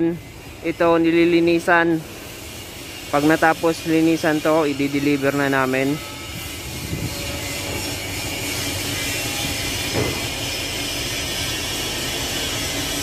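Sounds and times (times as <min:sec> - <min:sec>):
hiss: 0:01.7 - 0:07.2
machine hum: 0:06.0 - 0:13.0.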